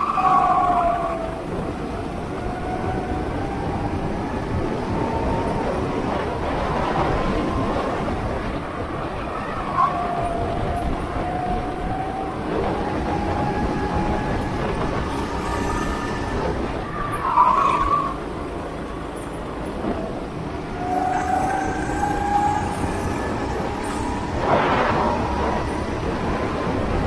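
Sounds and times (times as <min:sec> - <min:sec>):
high squeal: 0:13.1 - 0:18.2, 0:20.7 - 0:26.0.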